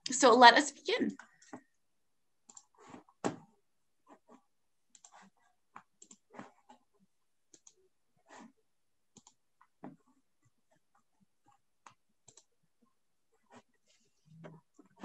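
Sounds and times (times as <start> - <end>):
keyboard and mouse clicks: 2.4 - 3.4, 4.9 - 6.8, 7.5 - 7.8, 9.1 - 9.4, 11.8 - 12.5.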